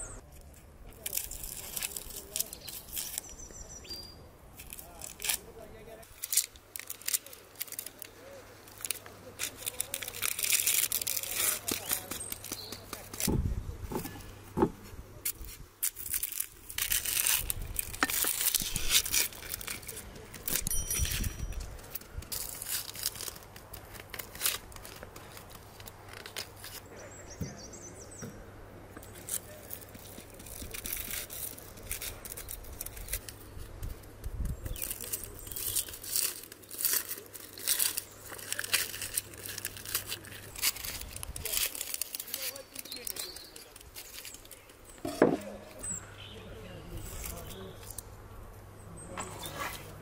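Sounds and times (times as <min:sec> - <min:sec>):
onion skin crackling and tearing: 0:00.3 - 0:13.4, 0:15.2 - 0:26.9, 0:29.0 - 0:45.2
bowl scraping through flour: 0:49.2 - 0:50.0.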